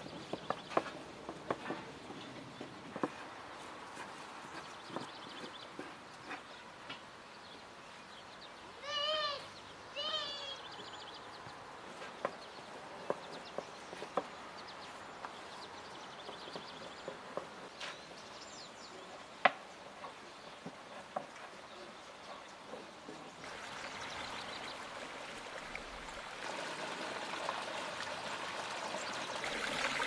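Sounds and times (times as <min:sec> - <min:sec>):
small birds chirping faintly: 0:00.0 - 0:26.5.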